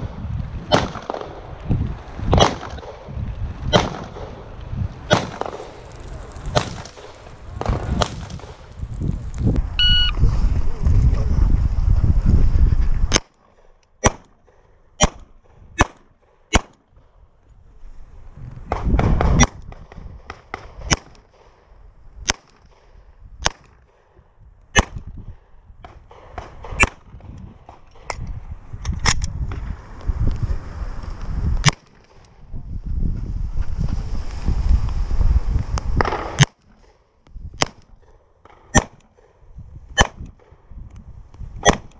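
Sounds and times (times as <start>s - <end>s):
low rumbling noise: 0.0s - 13.1s
pistol shots: 0.7s - 1.4s, 2.3s - 3.0s, 3.7s - 4.4s, 5.1s - 5.7s, 38.4s - 39.0s.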